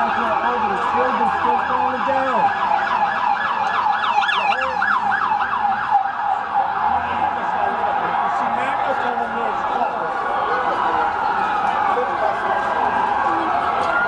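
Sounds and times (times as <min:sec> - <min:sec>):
siren yelping: 0:00.0 - 0:14.0
street noise: 0:00.0 - 0:14.0.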